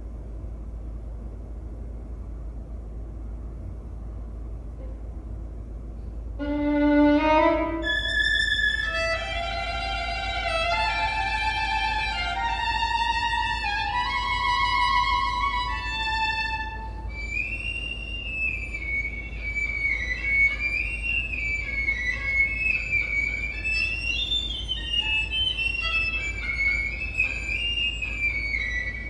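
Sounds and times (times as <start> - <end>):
solo violin: 6.4 - 29.0.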